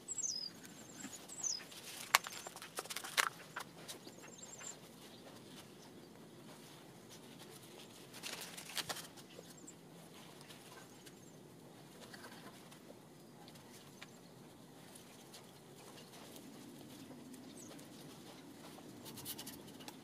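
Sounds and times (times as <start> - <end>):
distant bird chirps: 0.0 - 6.1.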